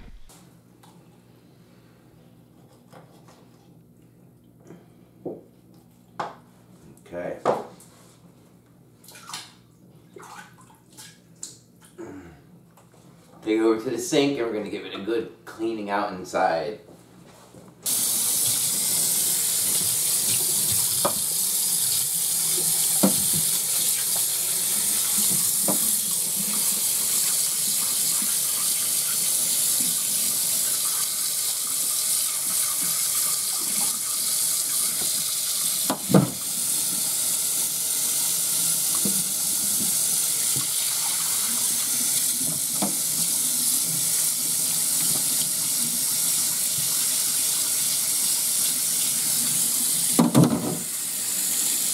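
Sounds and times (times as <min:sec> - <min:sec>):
tap water running: 0:17.8 - 0:51.9.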